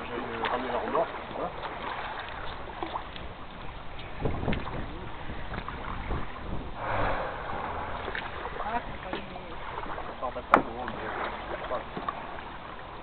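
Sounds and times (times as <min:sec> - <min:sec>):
wind buffeting microphone: 0:02.6 - 0:10.2.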